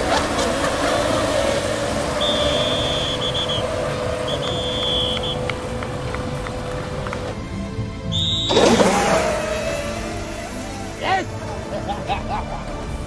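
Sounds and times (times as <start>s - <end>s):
rc boat motor whine: 0.0s - 7.4s, 8.1s - 11.8s
water wash: 0.0s - 7.4s
high-pitched tones: 0.9s - 7.1s.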